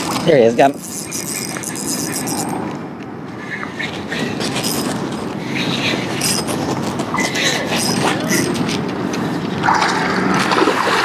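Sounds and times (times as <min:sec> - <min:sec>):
fishing reel being cranked: 0:00.0 - 0:02.6, 0:04.2 - 0:08.8.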